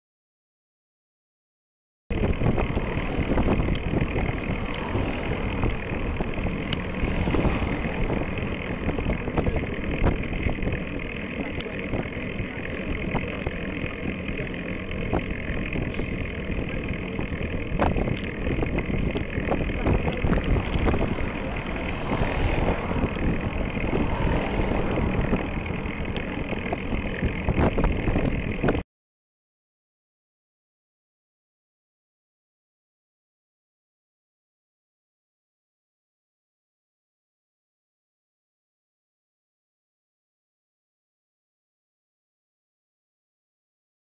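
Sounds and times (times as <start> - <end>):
road rumble: 2.1 - 28.8
wind buffeting microphone: 2.1 - 28.8
car passing: 2.2 - 28.6.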